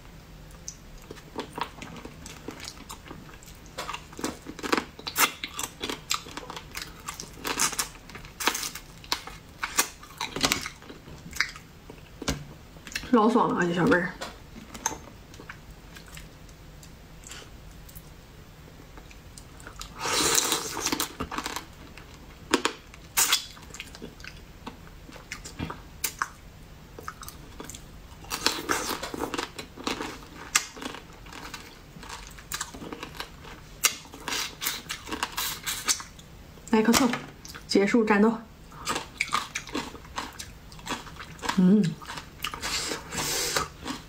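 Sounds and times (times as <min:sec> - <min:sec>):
chewing with crunching clicks: 0:00.5 - 0:12.3, 0:27.0 - 0:36.3, 0:38.8 - 0:42.7, 0:43.6 - 0:44.0.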